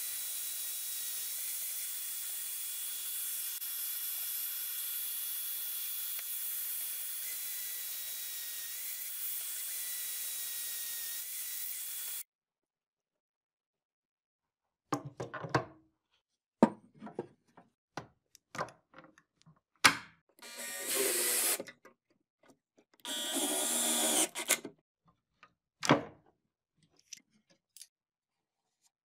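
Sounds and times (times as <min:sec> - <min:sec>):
cordless drill driving screw: 0:20.4 - 0:21.6, 0:23.0 - 0:24.7.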